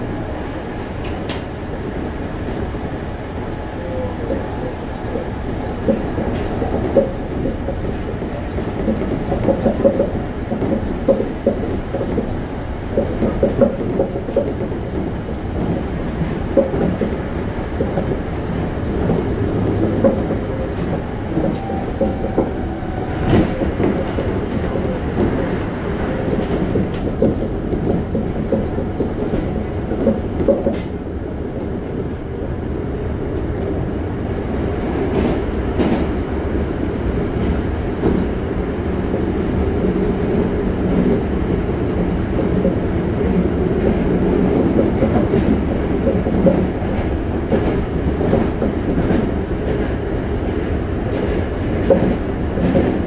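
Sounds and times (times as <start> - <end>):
train wheels rumbling on rail: 0.0 - 53.0
clicks from rail joints: 1.0 - 1.6, 26.2 - 31.0, 51.1 - 53.0.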